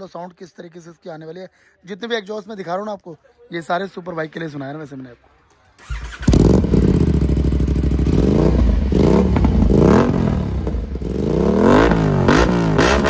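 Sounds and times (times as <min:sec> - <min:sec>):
motorcycle engine idling and revving: 0:05.8 - 0:13.0.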